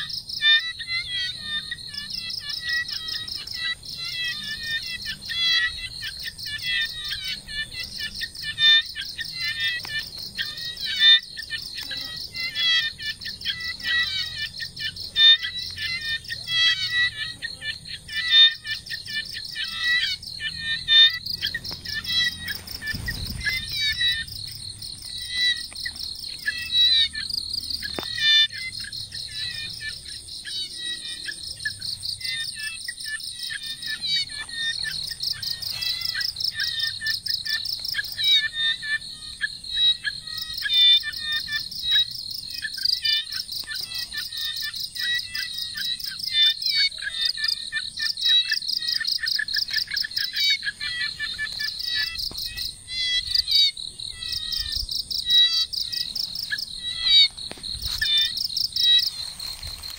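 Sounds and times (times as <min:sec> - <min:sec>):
insects chirping: 0:00.0 - 0:59.9
insects high-pitched whine: 0:00.0 - 0:59.9
insects pulsing trills: 0:00.0 - 0:59.9.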